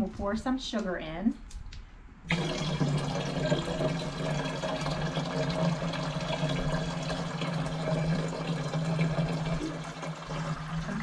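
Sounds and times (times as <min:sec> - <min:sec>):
juice pouring into jug: 0:02.3 - 0:11.0.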